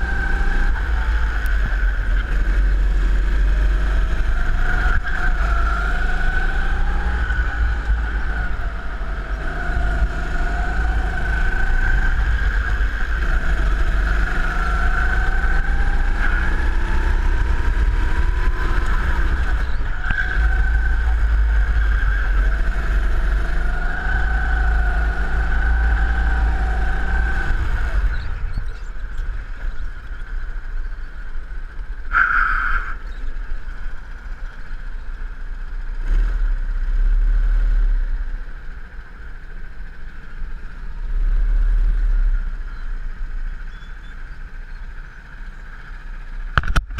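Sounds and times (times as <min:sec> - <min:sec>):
go-kart engine: 0:00.0 - 0:46.9.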